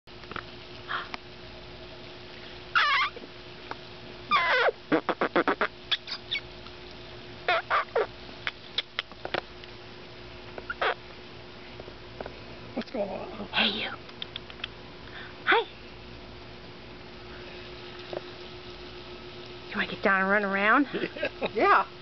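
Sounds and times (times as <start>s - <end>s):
wavering animal calls: 2.7s - 3.2s, 4.3s - 6.5s, 7.4s - 8.2s, 10.7s - 11.0s
short animal chirps: 4.3s - 6.5s.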